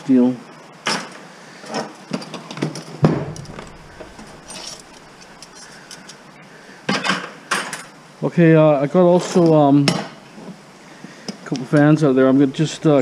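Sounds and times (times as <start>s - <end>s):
metal parts clattering on wooden bench: 1.7s - 6.2s
knocks on workbench: 3.0s - 3.6s.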